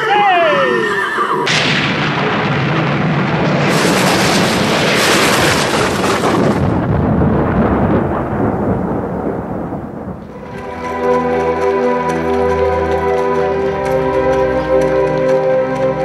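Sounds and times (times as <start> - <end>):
thunder rumbling: 1.4 - 11.6.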